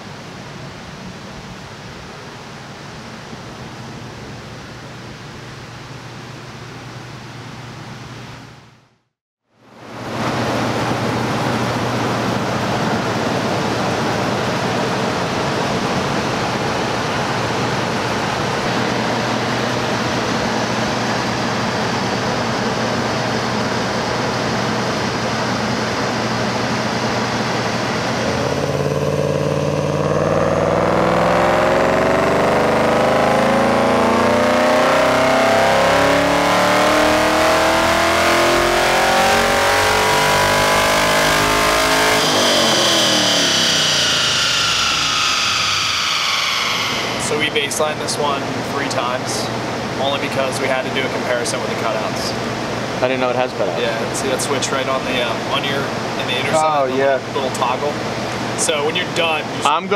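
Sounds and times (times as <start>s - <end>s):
car engine revving: 26.6s - 49.2s.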